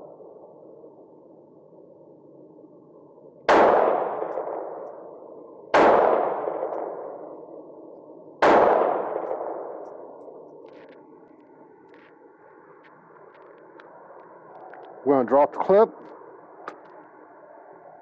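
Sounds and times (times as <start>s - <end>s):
pistol shots: 3.5s - 5.0s, 5.7s - 7.4s, 8.4s - 10.2s.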